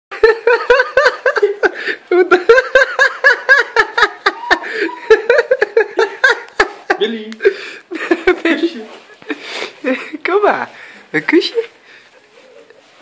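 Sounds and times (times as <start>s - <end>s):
boy giggling: 0.2s - 7.3s.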